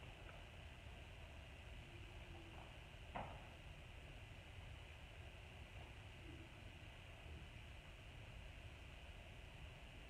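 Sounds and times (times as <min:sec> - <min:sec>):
faint knock: 0:03.1 - 0:03.4.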